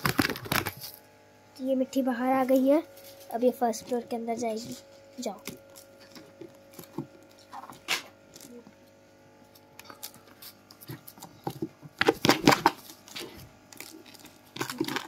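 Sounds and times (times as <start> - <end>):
small pet scratching: 2.2 - 8.6, 9.5 - 15.0.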